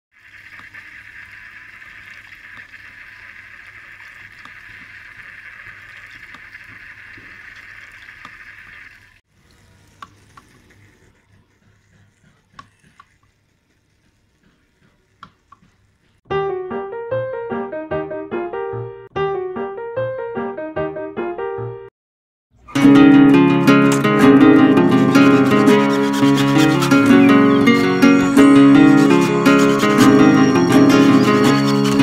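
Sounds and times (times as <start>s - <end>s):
fountain water splashing on pebbles: 0.1s - 10.8s
water dripping: 0.1s - 10.9s.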